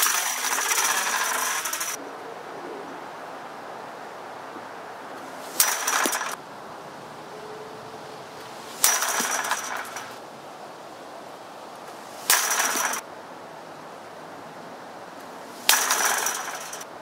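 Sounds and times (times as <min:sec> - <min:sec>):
chain-link fence rattling: 0:00.0 - 0:02.0, 0:05.2 - 0:06.4, 0:08.6 - 0:10.2, 0:11.9 - 0:13.1, 0:15.5 - 0:16.9
baseball smacking fence: 0:05.2 - 0:06.4, 0:08.7 - 0:10.2, 0:11.9 - 0:13.0, 0:15.5 - 0:16.9.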